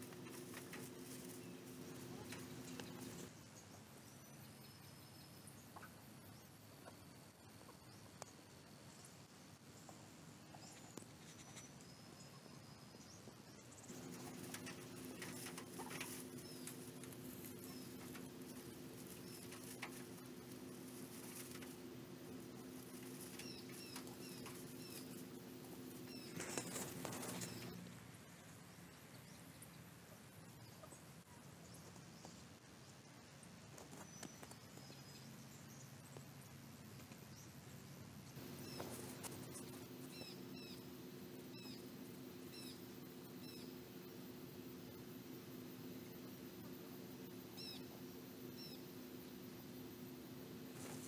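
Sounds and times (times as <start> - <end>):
low steady hum: 0.0 - 51.0
faint high chirps: 0.2 - 28.0, 38.4 - 51.0
partridges picking through straw: 13.9 - 27.8.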